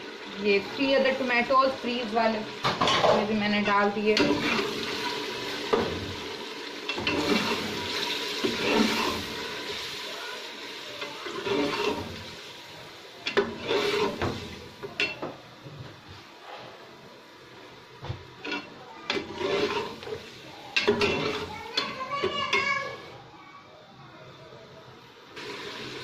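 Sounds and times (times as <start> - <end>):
food sizzling in a pan: 0.0 - 23.4, 25.2 - 26.0
ladle scraping a pot: 4.1 - 6.0, 6.9 - 9.4, 11.2 - 12.3, 13.3 - 15.2, 18.4 - 22.6.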